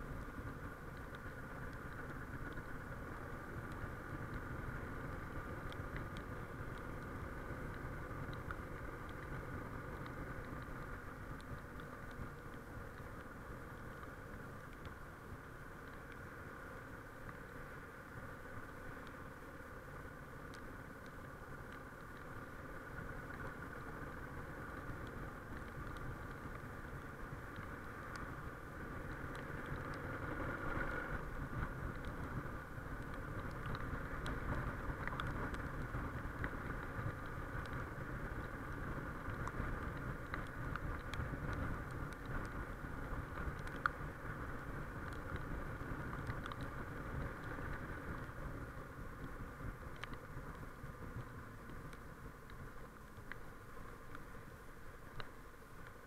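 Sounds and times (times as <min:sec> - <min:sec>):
wind rush on microphone: 0:21.0 - 0:56.0.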